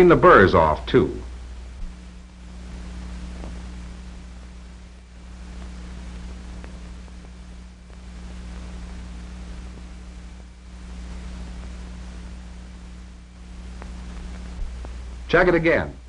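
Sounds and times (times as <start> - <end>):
film soundtrack hiss: 0.0 - 16.0
low hum: 0.0 - 16.0
faint ticks: 5.4 - 10.0, 13.6 - 15.1.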